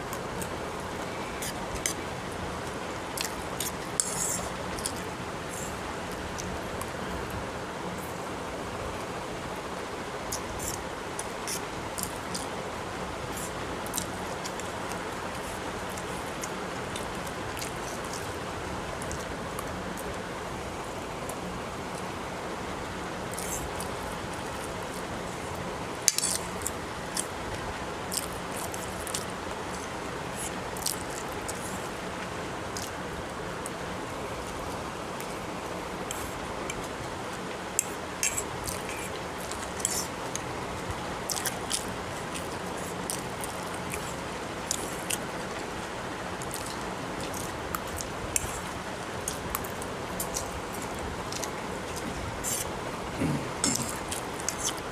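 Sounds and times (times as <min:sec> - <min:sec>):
steady hiss: 0:00.0 - 0:54.9
fork clicking and scraping on plate: 0:03.2 - 0:05.0, 0:26.1 - 0:27.3, 0:37.8 - 0:40.1.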